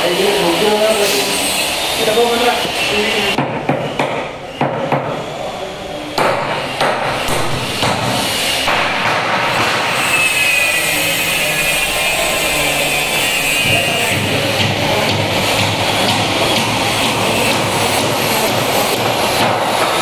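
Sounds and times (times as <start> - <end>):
hammer striking plywood: 3.4 - 5.2, 6.2 - 10.0
steady rushing background noise: 10.9 - 20.0.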